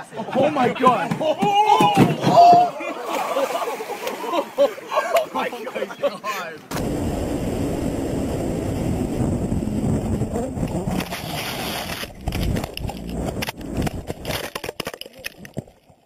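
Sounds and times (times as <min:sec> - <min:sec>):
wind and road noise: 0:06.7 - 0:15.7
rider crashing and tumbling: 0:08.6 - 0:15.8
knocks and scrapes: 0:10.3 - 0:16.0.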